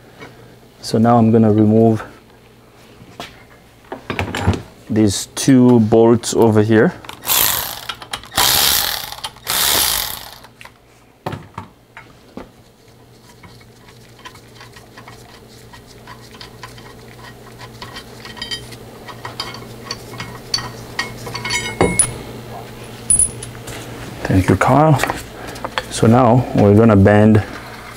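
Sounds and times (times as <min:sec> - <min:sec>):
power ratchet hissing bursts: 0:07.2 - 0:10.5.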